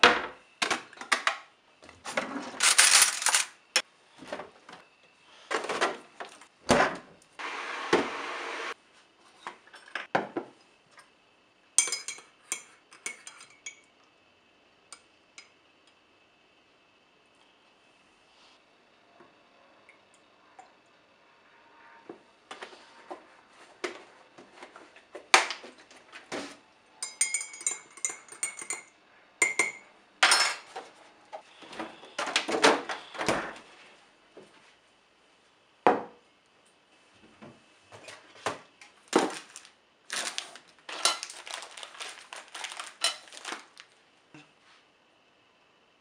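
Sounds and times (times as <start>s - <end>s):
teaspoon clinking in ceramic mug: 27.0s - 29.8s.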